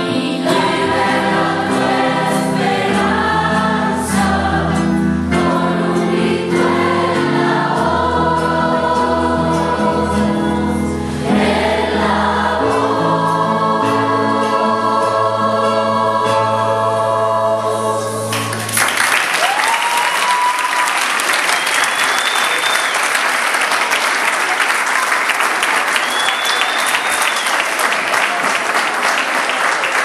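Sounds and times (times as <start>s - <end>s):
choir singing chord: 0.0s - 18.7s
crowd applauding: 18.3s - 30.0s
cheering calls: 18.8s - 30.0s.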